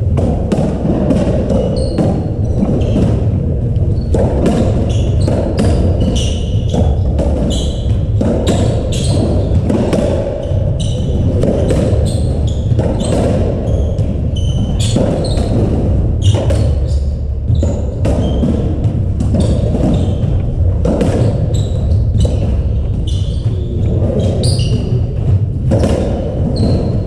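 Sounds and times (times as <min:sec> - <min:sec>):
rackets striking ball: 0:00.0 - 0:27.0
shoe squeaks on wooden floor: 0:01.6 - 0:03.0, 0:03.9 - 0:09.5, 0:10.4 - 0:11.3, 0:11.9 - 0:15.6, 0:16.2 - 0:18.4, 0:19.3 - 0:20.4, 0:21.2 - 0:25.2, 0:26.6 - 0:27.0.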